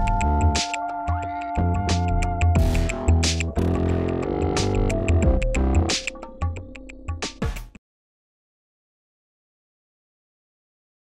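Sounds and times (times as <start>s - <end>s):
electronic music with hi-hat beat: 0.0s - 7.8s.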